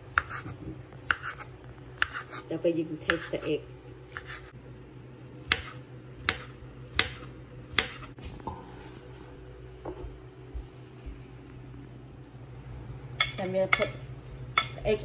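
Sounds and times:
knife slicing omelette: 0.1s - 2.4s.

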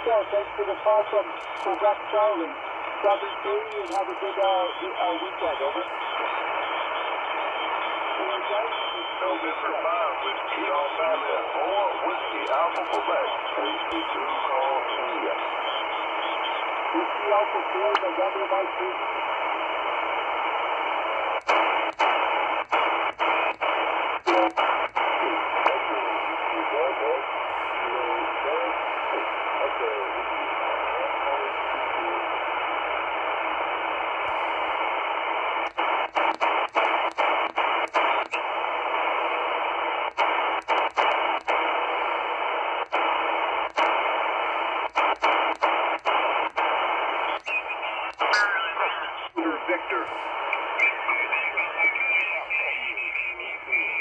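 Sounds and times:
radio band noise hiss: 0.0s - 54.0s
radio tuning clicks: 0.0s - 54.0s.

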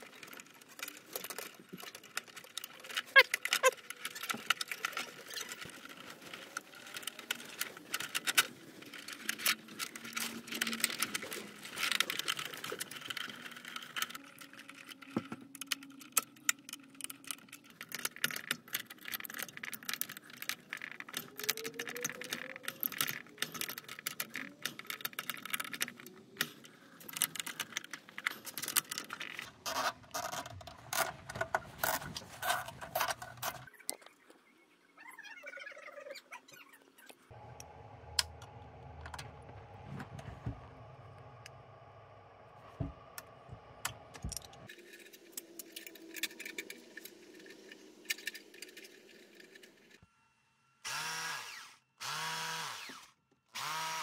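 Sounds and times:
wires rustling and clicking: 0.0s - 34.4s, 42.6s - 50.1s.

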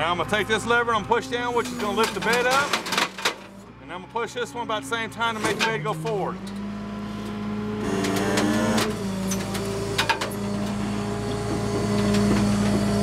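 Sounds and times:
tow truck engine and hydraulics: 0.0s - 13.0s
sharp metallic clicks and clunks: 1.6s - 3.6s, 5.3s - 10.8s.

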